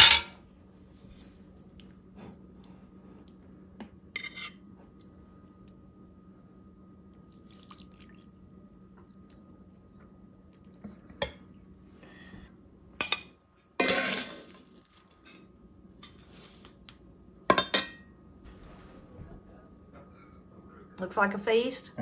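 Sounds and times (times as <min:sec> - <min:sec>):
utensils clinking on plate: 0:00.0 - 0:00.4
utensil scraping skillet: 0:04.1 - 0:04.6.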